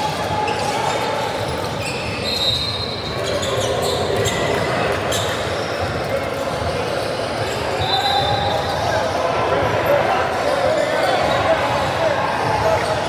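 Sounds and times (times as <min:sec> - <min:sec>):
crowd chatter: 0:00.0 - 0:13.0
short high squeaks: 0:00.5 - 0:04.4.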